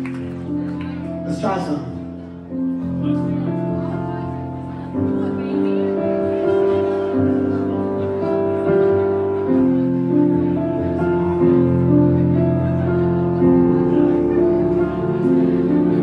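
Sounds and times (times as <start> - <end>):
keyboard playing held chords: 0.0 - 16.0.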